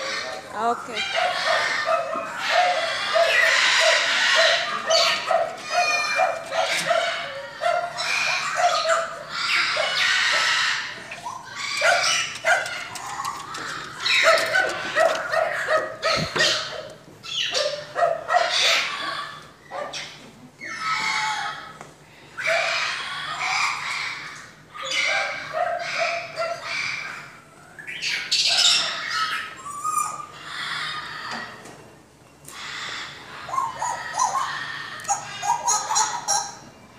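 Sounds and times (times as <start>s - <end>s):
dogs barking and yipping: 0.0s - 20.2s, 22.4s - 31.5s, 32.8s - 36.8s
loud background noise: 0.0s - 36.9s.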